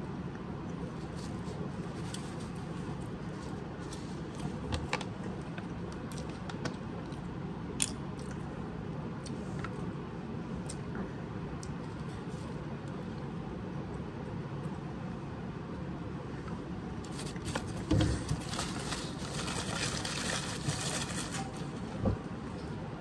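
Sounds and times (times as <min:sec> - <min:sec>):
low background hum: 0:00.0 - 0:23.0
foil wrapper crinkling: 0:17.1 - 0:21.9.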